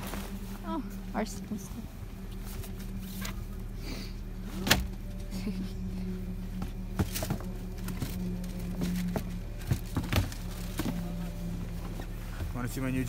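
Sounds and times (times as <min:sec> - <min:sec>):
steady low hum: 0:00.0 - 0:13.0
knocks and rustles of gear: 0:06.5 - 0:12.6.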